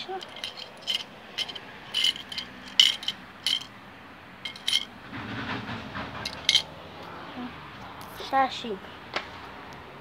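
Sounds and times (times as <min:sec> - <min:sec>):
small hard objects clinking: 0:00.0 - 0:03.7, 0:04.4 - 0:04.9, 0:06.3 - 0:06.7.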